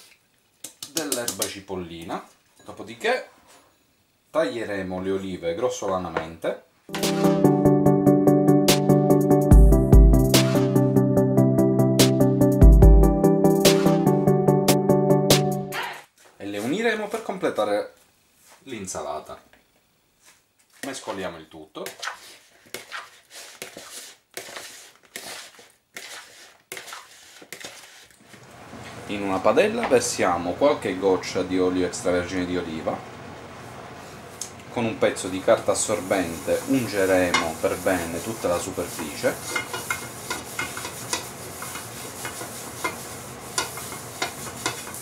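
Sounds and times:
hands tossing salad in plastic bowl: 21.9 - 28.4, 35.6 - 45.0
paper towel wiping a pan: 22.0 - 28.2, 35.1 - 45.0.

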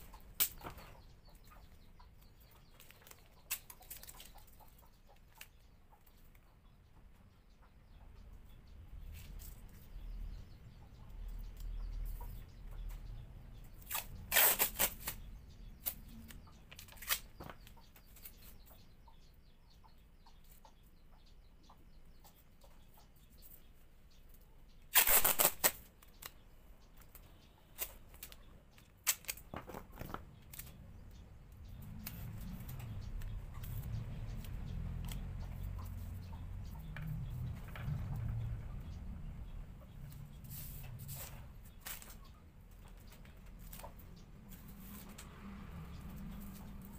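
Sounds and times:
masking tape ripping: 13.8 - 16.0, 16.8 - 17.3, 24.9 - 25.9, 29.0 - 29.6
low rumble: 31.2 - 41.7.

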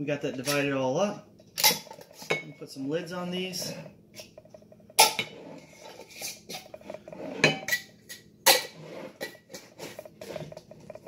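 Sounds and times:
lid turning clicks and ticking: 4.2 - 11.0.

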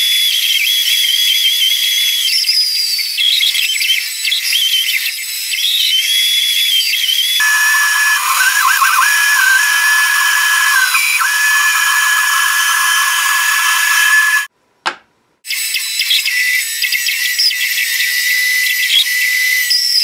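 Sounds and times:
bandsaw whining: 7.4 - 14.5.

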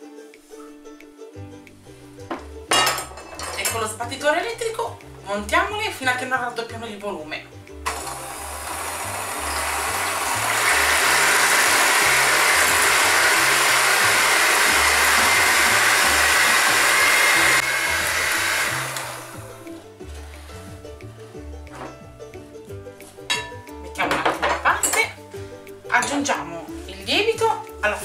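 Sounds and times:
electric hand mixer whirring: 7.9 - 19.6.

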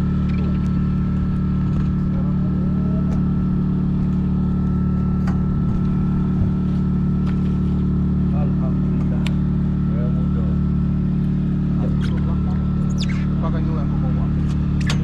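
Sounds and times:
engine droning: 0.0 - 15.0.

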